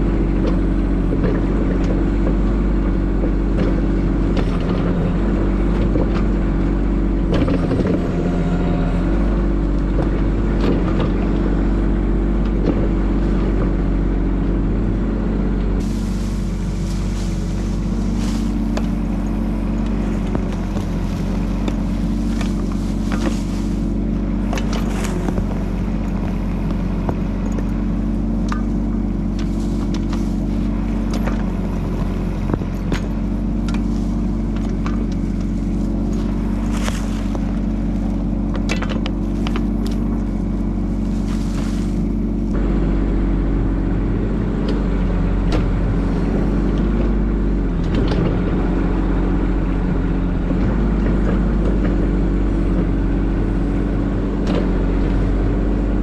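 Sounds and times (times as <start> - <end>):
dirt and stones scraping: 0.0 - 13.9, 15.8 - 56.0
mini excavator diesel engine: 0.0 - 56.0.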